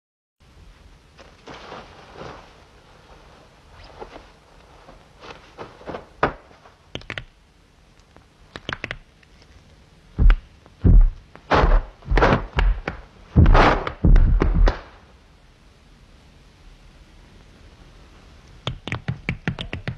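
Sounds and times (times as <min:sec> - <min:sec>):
heavy swishing thuds: 0:10.2 - 0:15.0.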